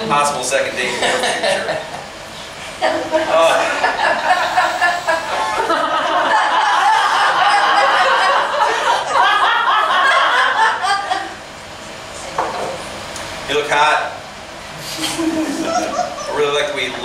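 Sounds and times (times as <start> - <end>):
audience laughing: 0.8 - 2.1, 2.8 - 11.4, 15.0 - 16.6.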